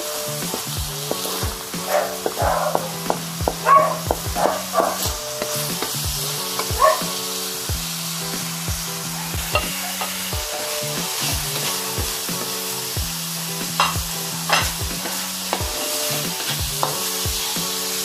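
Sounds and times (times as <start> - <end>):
food sizzling in a wok: 0.0 - 18.0
wooden spatula scraping a pan: 0.5 - 7.2.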